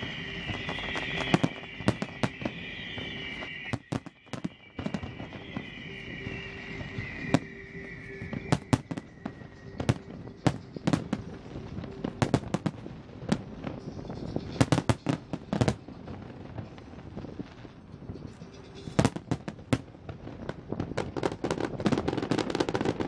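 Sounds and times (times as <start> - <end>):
descending firework whistle: 0.0 - 23.0
fireworks bursting: 0.0 - 23.0.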